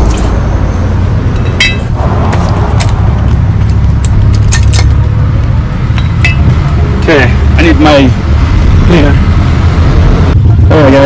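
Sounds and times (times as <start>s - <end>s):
steady low rumble: 0.0s - 11.0s
metal clinking and rattling: 1.3s - 1.9s.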